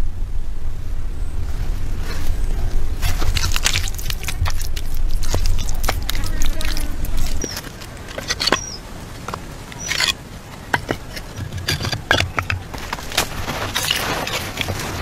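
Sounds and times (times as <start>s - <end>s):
soil scattering hiss: 2.0s - 15.0s
clay tiles clicking and knocking: 3.4s - 15.0s
bird chirps: 7.1s - 8.8s, 9.7s - 10.2s.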